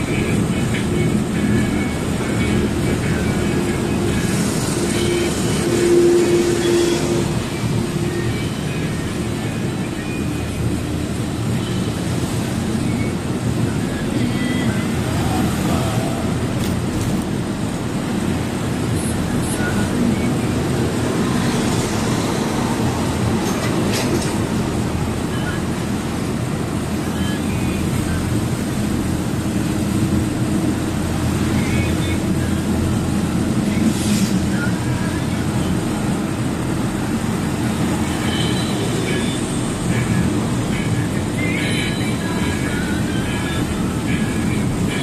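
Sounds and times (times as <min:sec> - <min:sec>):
road noise inside cab: 0:00.0 - 0:45.0
truck engine and tyre drone: 0:00.0 - 0:45.0.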